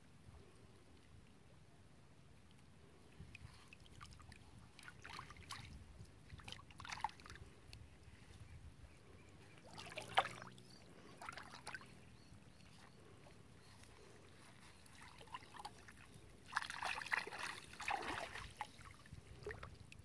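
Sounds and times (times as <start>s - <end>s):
water splashing and trickling: 3.1s - 8.3s, 9.6s - 20.0s.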